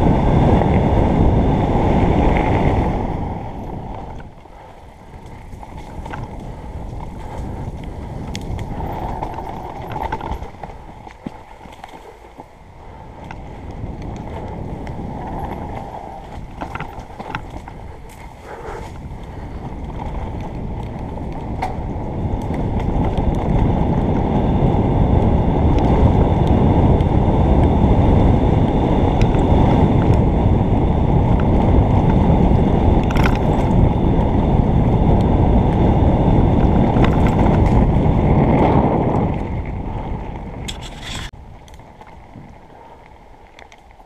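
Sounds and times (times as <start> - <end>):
mountain bike rolling on dirt: 0.0 - 44.0
wind buffeting microphone: 0.0 - 44.0.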